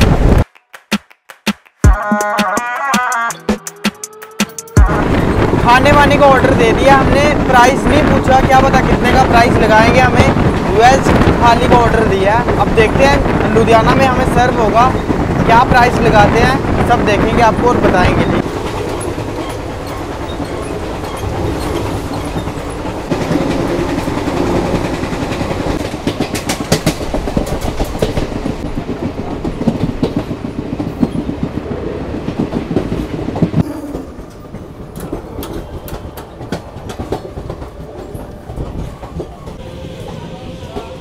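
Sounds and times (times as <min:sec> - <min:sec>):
train rumble: 0:04.7 - 0:41.0
wheels clattering over rail joints: 0:18.2 - 0:31.6, 0:32.3 - 0:39.6.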